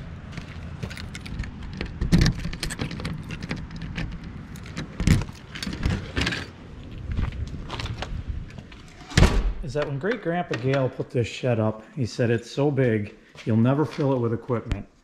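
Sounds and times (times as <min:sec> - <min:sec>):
steady low rumble: 0:00.0 - 0:08.9
keys jangling: 0:00.8 - 0:06.5
door pulled open: 0:00.9 - 0:06.6, 0:07.7 - 0:10.9.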